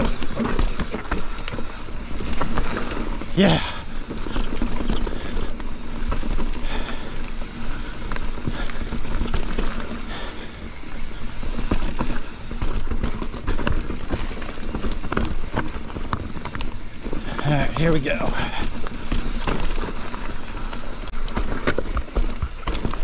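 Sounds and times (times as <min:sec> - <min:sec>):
bike rattling: 0:00.0 - 0:23.0
tyres rolling on dirt: 0:00.0 - 0:23.0.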